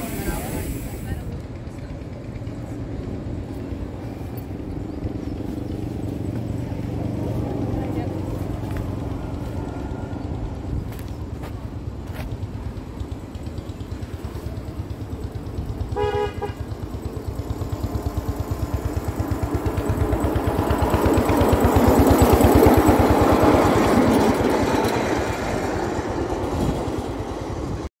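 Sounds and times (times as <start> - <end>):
miniature locomotive chugging: 0.0 - 27.9
wheels rumbling on rails: 0.0 - 27.9
train horn toot: 15.9 - 16.8.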